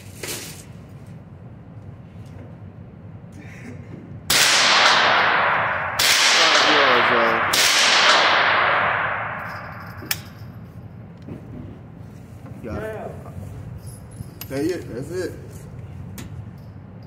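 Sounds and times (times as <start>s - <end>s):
rifle shots echoing: 4.3s - 10.3s
sharp metallic click: 9.3s - 10.5s.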